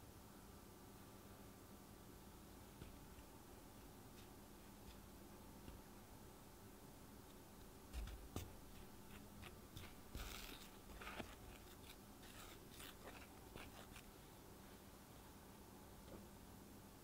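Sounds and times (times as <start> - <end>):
spatula scraping through flour: 9.0 - 14.2.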